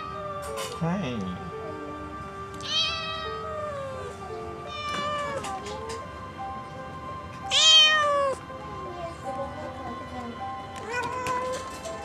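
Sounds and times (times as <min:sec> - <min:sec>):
cat meowing: 0:00.0 - 0:00.6, 0:02.6 - 0:06.0, 0:07.4 - 0:08.4, 0:10.8 - 0:11.7
background music: 0:00.0 - 0:12.0.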